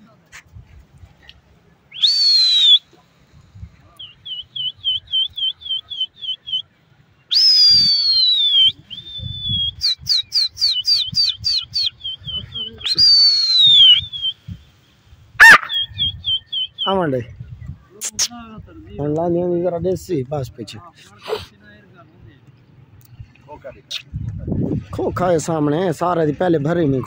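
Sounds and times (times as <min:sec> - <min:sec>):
long falling whistles: 0:01.9 - 0:02.8, 0:07.3 - 0:14.4
rising whistled chirps: 0:01.9 - 0:02.9, 0:04.0 - 0:06.6, 0:07.3 - 0:14.7, 0:15.4 - 0:17.0.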